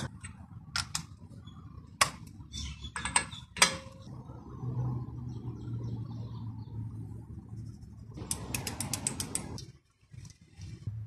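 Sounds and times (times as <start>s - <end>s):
ratchet wrench clicking: 8.2s - 9.6s.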